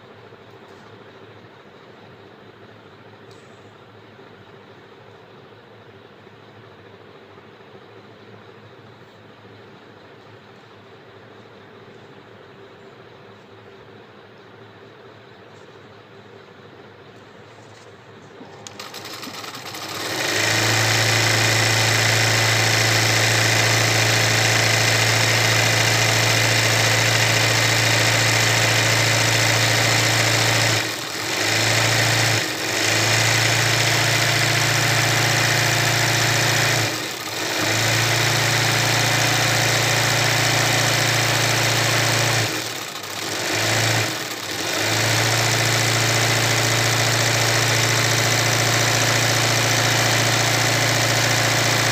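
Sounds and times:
electric sewing machine stitching: 18.6 - 51.9.

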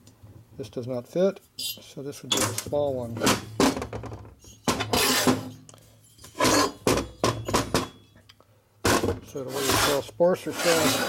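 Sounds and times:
metal parts clunking on workbench: 2.3 - 8.2.

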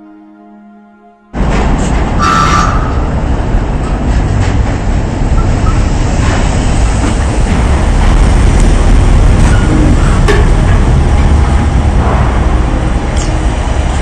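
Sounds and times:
fire rumbling: 3.0 - 14.0.

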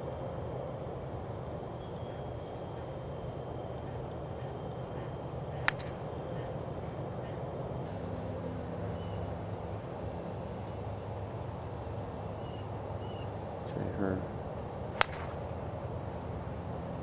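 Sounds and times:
low outdoor rumble: 0.0 - 17.0
golf club striking ball: 5.6 - 6.0, 14.9 - 15.6.

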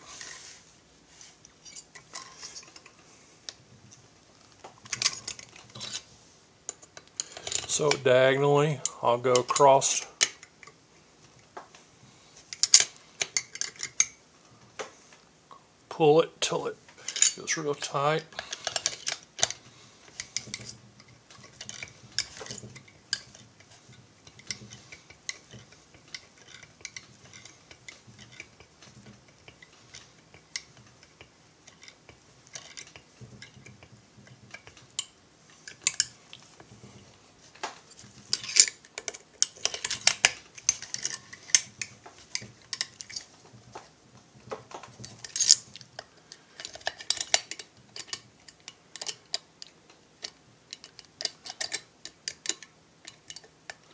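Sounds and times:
hand tools clicking on screws: 6.7 - 8.1, 17.0 - 36.4, 37.6 - 43.3, 44.8 - 53.9.

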